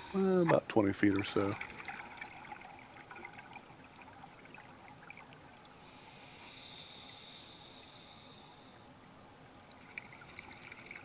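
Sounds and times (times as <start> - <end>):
diver breathing through regulator: 5.7 - 8.9.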